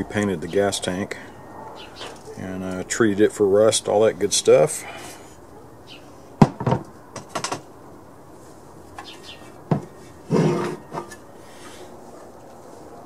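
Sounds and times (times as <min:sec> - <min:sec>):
scraping rustle: 0:08.3 - 0:13.0.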